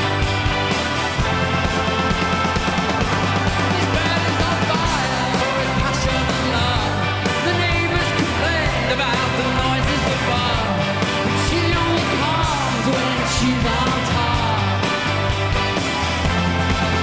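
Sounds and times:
live rock band playing: 0:00.0 - 0:17.0
man singing: 0:03.4 - 0:15.1.

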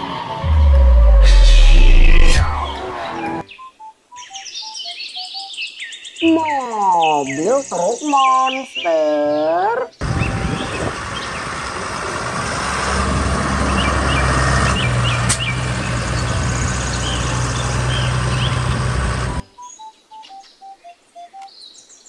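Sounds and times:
birds chirping: 0:00.0 - 0:11.7, 0:13.6 - 0:22.0
tractor diesel engine running: 0:10.0 - 0:19.4.

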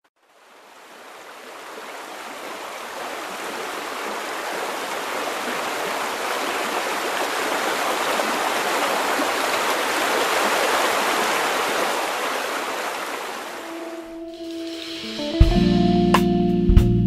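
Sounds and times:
water rushing over a weir: 0:00.2 - 0:14.1.

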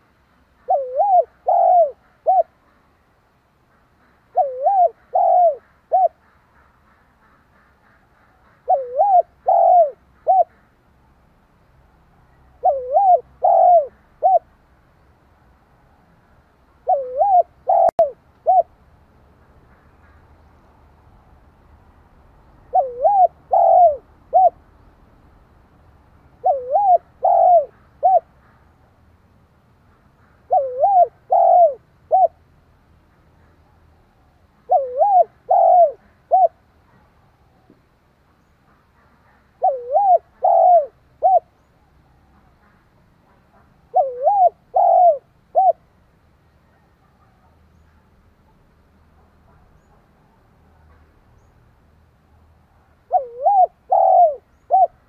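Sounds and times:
dove cooing: 0:00.6 - 0:02.8, 0:04.3 - 0:06.7, 0:07.3 - 0:10.7, 0:12.5 - 0:14.5, 0:16.8 - 0:18.8, 0:22.6 - 0:24.6, 0:26.4 - 0:28.6, 0:30.5 - 0:32.4, 0:34.6 - 0:37.0, 0:39.2 - 0:41.6, 0:42.3 - 0:45.8, 0:53.0 - 0:55.0.

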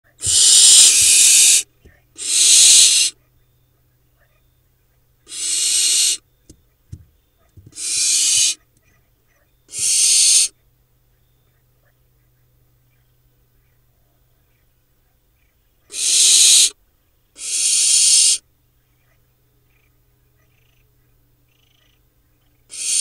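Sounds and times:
owl nestlings hissing screechy calls: 0:00.2 - 0:03.2, 0:05.3 - 0:06.2, 0:07.6 - 0:08.6, 0:09.7 - 0:10.5, 0:15.9 - 0:16.8, 0:17.4 - 0:18.4, 0:22.7 - 0:23.0.

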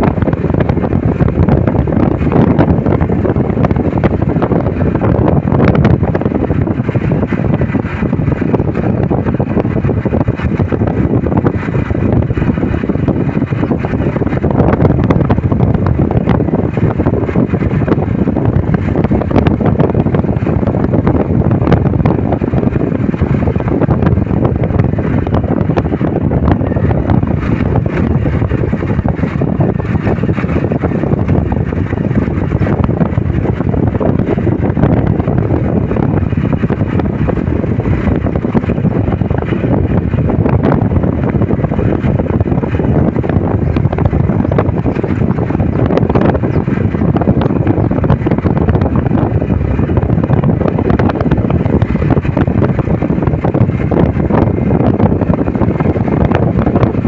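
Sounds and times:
vehicle road noise: 0:00.0 - 0:57.0
wind buffeting microphone: 0:00.0 - 0:57.0.

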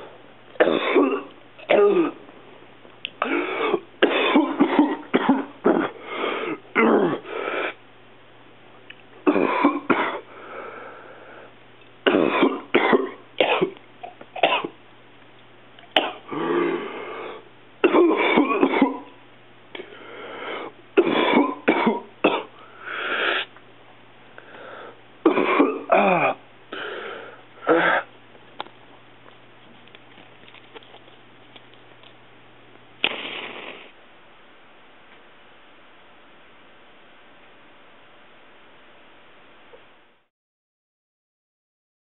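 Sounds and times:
faint low hum: 0:00.0 - 0:40.3
person coughing: 0:00.6 - 0:02.2, 0:03.2 - 0:07.3, 0:09.2 - 0:10.3, 0:12.1 - 0:14.8, 0:16.0 - 0:16.9, 0:17.8 - 0:19.2, 0:21.0 - 0:22.6, 0:25.3 - 0:26.4, 0:27.6 - 0:28.1
throat clearing: 0:00.6 - 0:02.2, 0:03.2 - 0:06.0, 0:06.6 - 0:07.3.

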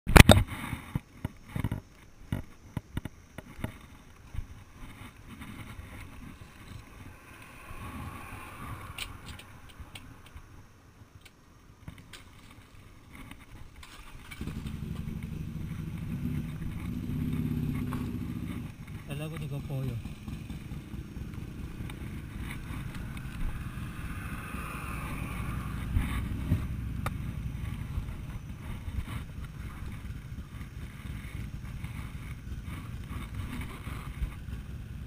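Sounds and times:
clicks and knocks handling bike: 0:11.2 - 0:19.5
motorcycle engine running: 0:14.0 - 0:35.0.

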